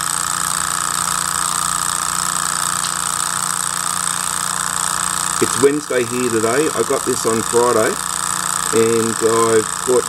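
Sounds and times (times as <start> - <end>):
small stirling engine running: 0.0 - 10.0.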